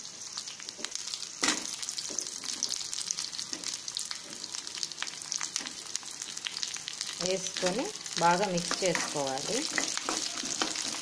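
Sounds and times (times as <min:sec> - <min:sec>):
food sizzling in hot oil: 0:00.0 - 0:11.0
spoon clicking and scraping pan: 0:08.6 - 0:11.0.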